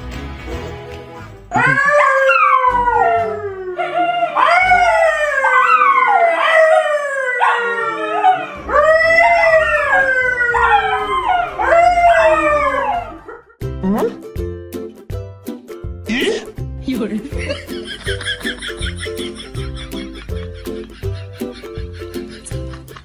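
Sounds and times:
dog howling: 1.5s - 13.4s.

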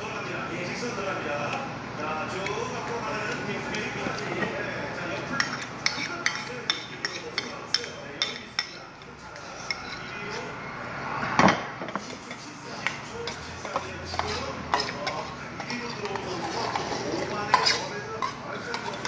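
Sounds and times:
metal spoon clinking on bowls: 5.4s - 10.5s, 12.3s - 19.0s.

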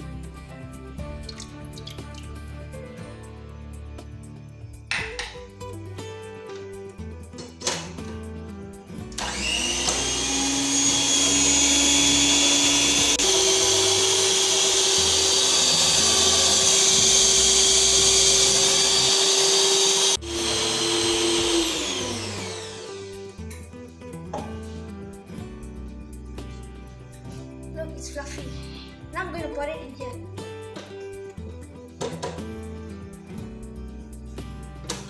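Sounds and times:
stand mixer motor whirring: 9.2s - 23.1s.

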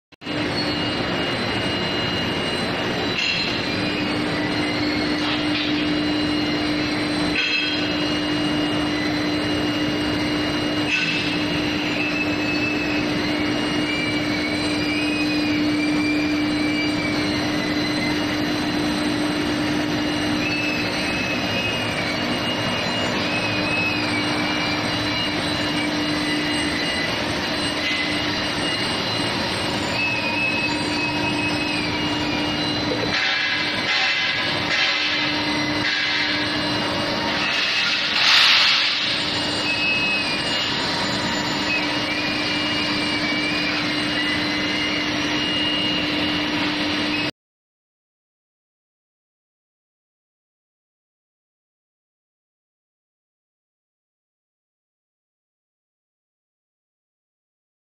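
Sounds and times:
mechanical din with hum: 0.2s - 47.3s
wavering high squeal: 0.2s - 47.3s
sharp metal clanks: 7.3s - 7.9s.

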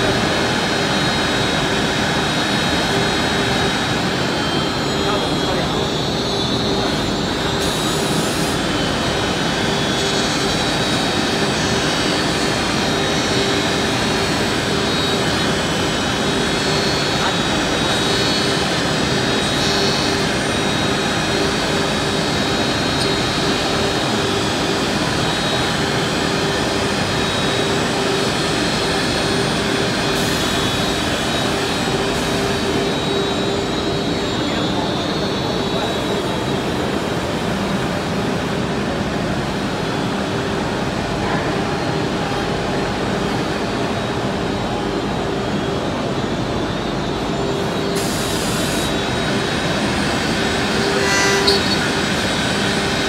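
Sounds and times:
router spindles whining: 48.8s - 53.0s
router cutting wood: 50.7s - 52.0s.

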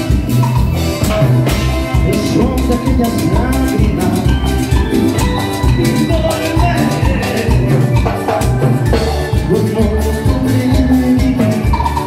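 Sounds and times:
latin dance band music: 0.0s - 12.0s.

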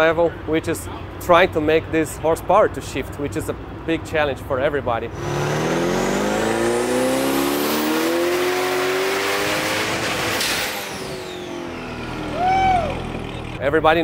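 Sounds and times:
engine revving at full throttle: 5.1s - 13.5s.

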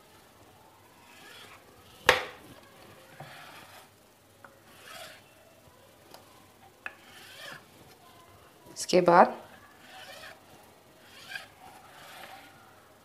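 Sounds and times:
knife scraping through dough: 1.0s - 1.6s, 3.0s - 3.9s, 4.6s - 5.3s, 6.9s - 7.8s, 9.4s - 12.6s.

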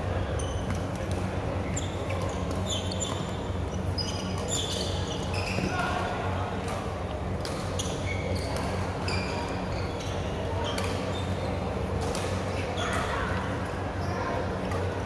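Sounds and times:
shoes squeaking on court: 0.3s - 1.0s, 1.6s - 6.0s, 7.6s - 11.6s.

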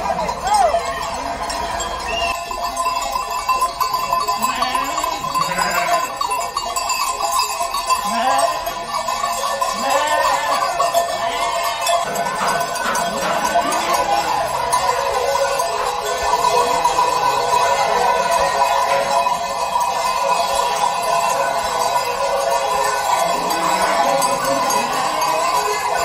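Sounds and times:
sheep bells jingling: 0.0s - 26.0s
sheep bleating: 4.3s - 6.2s, 8.0s - 8.7s, 9.7s - 14.6s, 23.2s - 25.8s.

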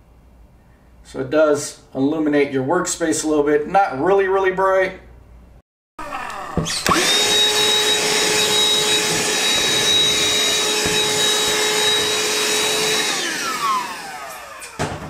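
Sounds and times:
handheld vacuum cleaner motor: 6.6s - 15.0s.

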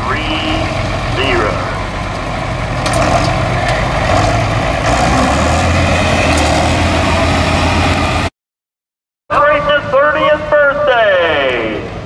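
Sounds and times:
tractor engine droning: 0.0s - 8.3s.

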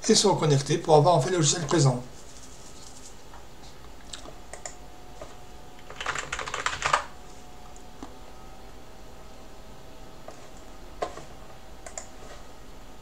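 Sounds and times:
keyboard typing: 5.8s - 7.1s.

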